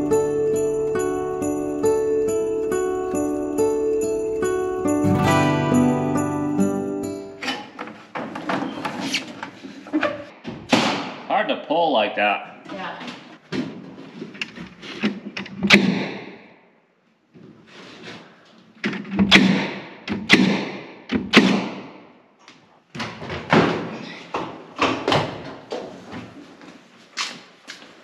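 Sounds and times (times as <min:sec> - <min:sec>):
staple gun firing into wood: 0:19.3 - 0:21.8.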